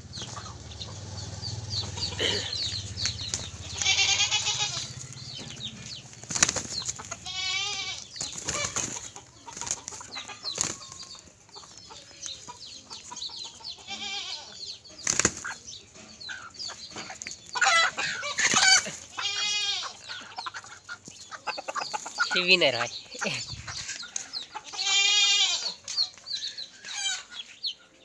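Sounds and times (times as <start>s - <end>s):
hens squawking and clucking: 0.0s - 28.0s
wings flapping: 1.6s - 11.1s, 15.0s - 15.6s
scuffling: 1.8s - 11.0s.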